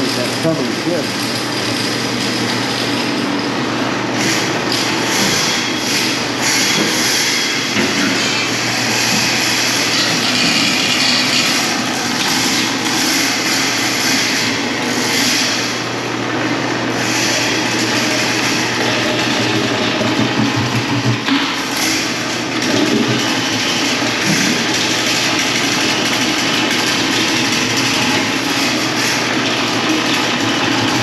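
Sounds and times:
machinery hum and hiss: 0.0s - 31.0s.

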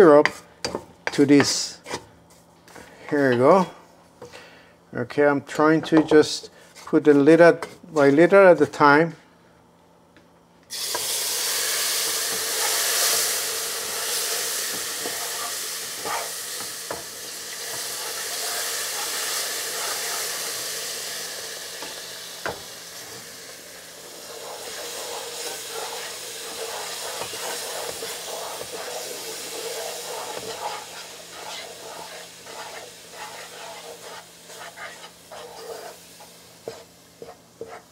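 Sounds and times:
syrup hissing and sizzling in pan: 10.7s - 37.9s.

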